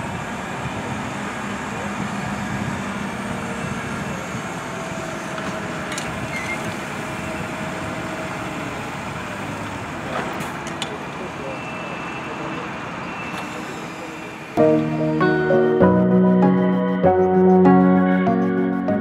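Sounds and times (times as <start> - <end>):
tractor diesel engine running: 0.0 - 17.4.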